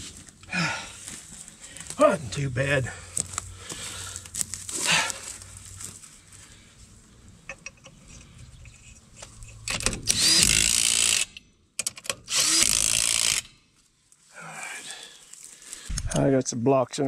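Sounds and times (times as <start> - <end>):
power tool motor whining: 9.7 - 11.4, 12.3 - 13.5.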